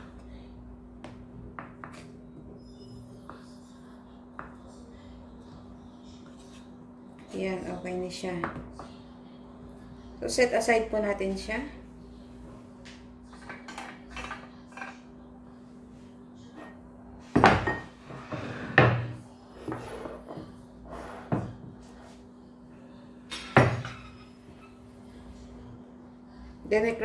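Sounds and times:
faint steady hum: 0.0s - 27.0s
dishes and utensils clinking: 17.4s - 20.5s, 23.3s - 24.8s.

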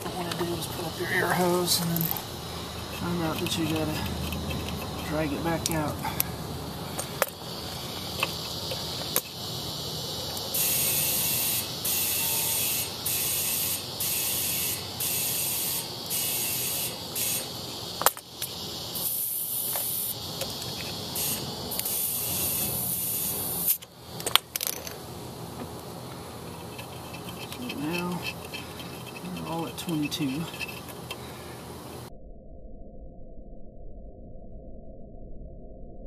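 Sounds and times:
compressed air hissing into tire: 1.0s - 24.2s.

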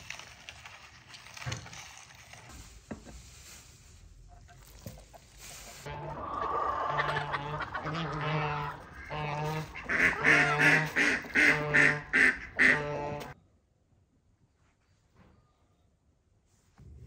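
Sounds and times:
waterfowl calling: 5.8s - 13.4s.

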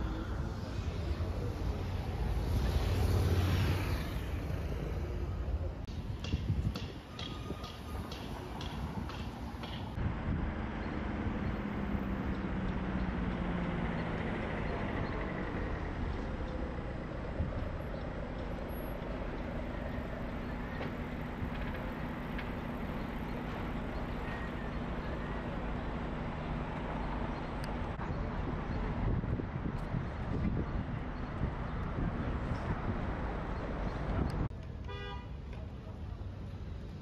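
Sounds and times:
street traffic hum: 0.0s - 37.0s.

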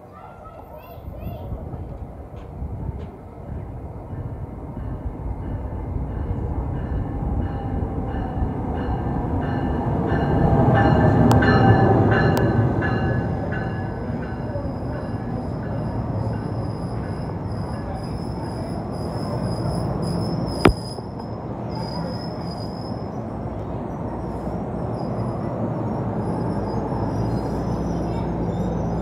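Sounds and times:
train rumble: 0.0s - 29.0s
wheels and brakes squealing: 14.6s - 29.0s.

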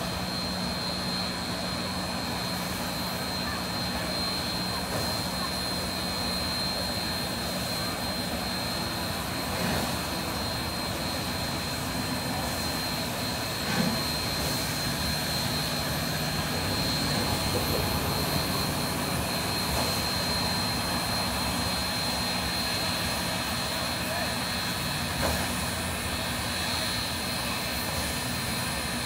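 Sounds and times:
steam locomotive hissing: 0.0s - 29.0s.

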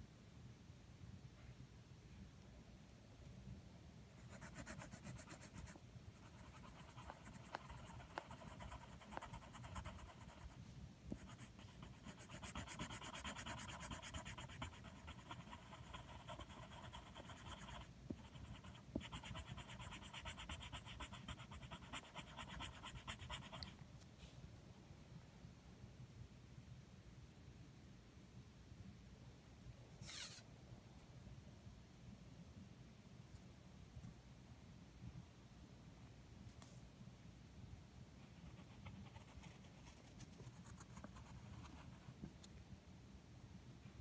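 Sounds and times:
pencil shading on paper: 4.2s - 10.6s, 11.2s - 23.7s.

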